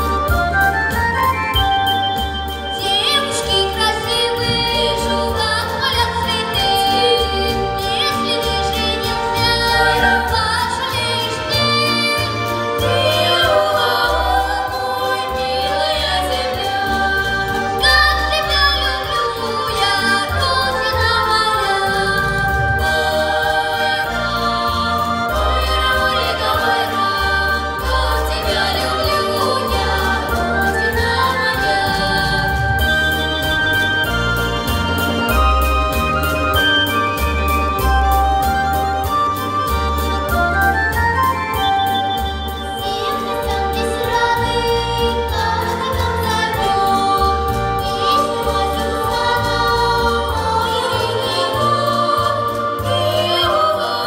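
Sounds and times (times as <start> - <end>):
button accordion with pulsing bass: 0.0 - 54.0
children singing folk song: 2.2 - 40.2, 40.9 - 54.0.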